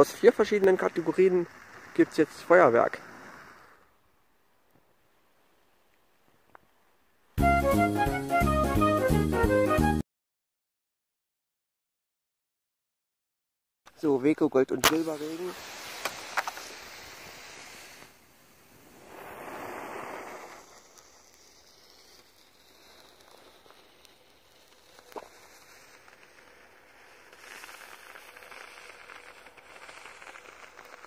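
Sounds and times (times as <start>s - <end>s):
firework fountain hissing and crackling: 0.0s - 4.0s, 13.9s - 31.0s.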